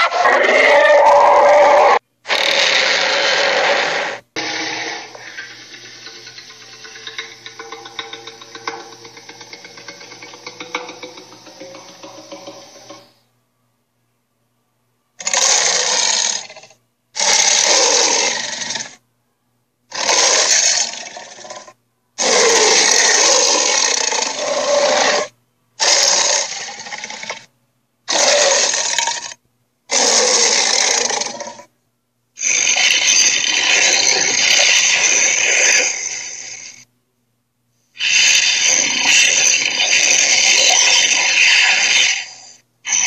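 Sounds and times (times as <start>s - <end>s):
cartoon dinosaur roars: 0.0s - 13.1s, 15.2s - 19.0s, 19.9s - 27.5s, 28.1s - 31.7s, 32.4s - 36.8s, 38.0s - 43.0s.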